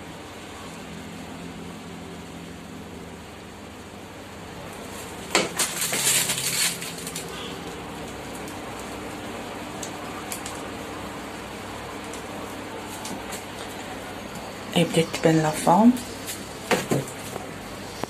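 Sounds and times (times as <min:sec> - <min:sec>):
background hum: 0:00.0 - 0:18.0
plastic bags rustling: 0:04.8 - 0:09.0.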